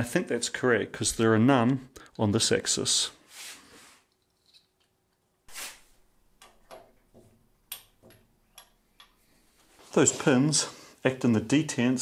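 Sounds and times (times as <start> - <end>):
metal parts handling noise: 4.1 - 5.0
soft rustle: 9.3 - 10.7.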